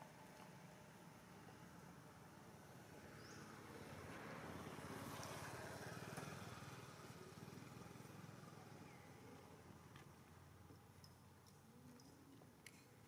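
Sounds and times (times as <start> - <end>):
distant vehicle passing by: 0.7 - 9.9.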